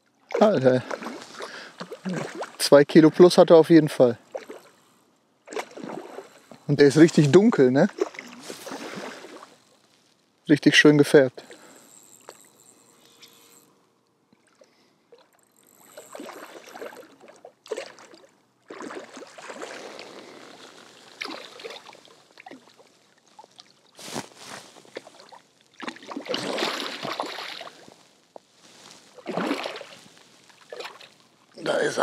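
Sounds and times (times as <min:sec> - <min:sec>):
fish thrashing and splashing: 0:00.3 - 0:02.6, 0:05.5 - 0:06.6, 0:07.9 - 0:09.8, 0:14.5 - 0:28.0, 0:29.0 - 0:31.2.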